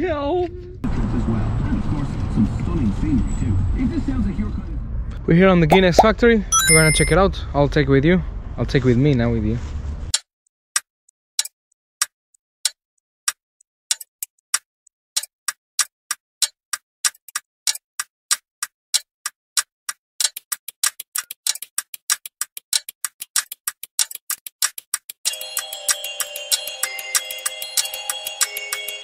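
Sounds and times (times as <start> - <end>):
sharp clock-like ticks: 10.8 - 29.0.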